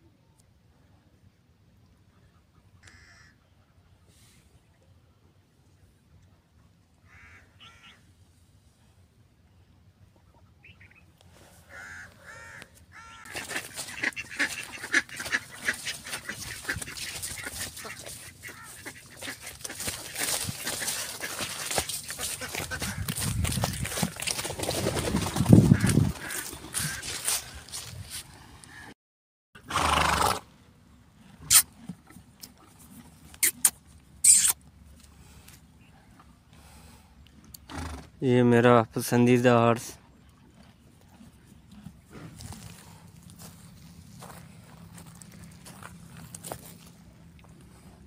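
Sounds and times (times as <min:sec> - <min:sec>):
ducks quacking: 0:11.7 - 0:24.1, 0:25.4 - 0:27.9
horse snorting: 0:13.3 - 0:27.4, 0:29.6 - 0:30.5, 0:37.6 - 0:38.2.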